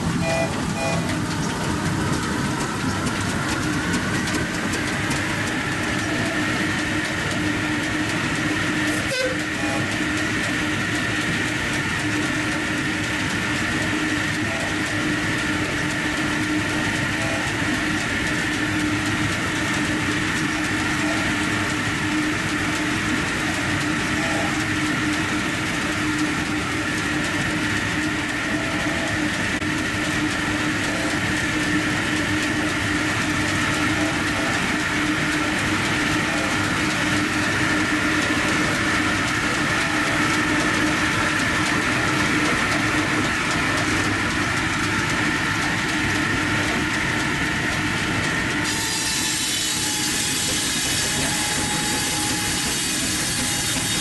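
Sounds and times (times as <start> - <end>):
saw blade whine over hum: 0.0 - 54.0.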